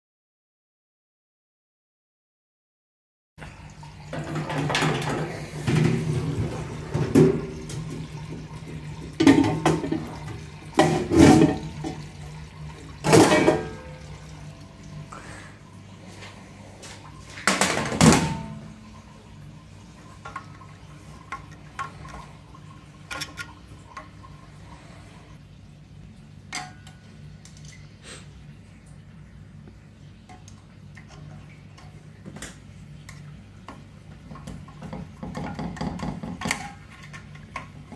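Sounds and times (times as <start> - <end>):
steady low hum: 4.9 - 34.6.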